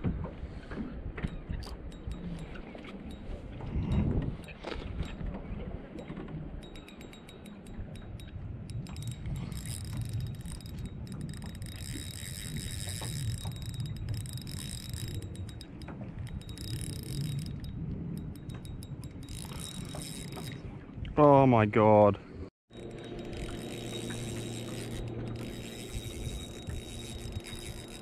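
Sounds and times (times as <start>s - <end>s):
wind and water rumble: 0.0s - 28.0s
fishing reel clicking and whirring: 1.2s - 5.3s, 6.6s - 20.6s, 22.7s - 28.0s.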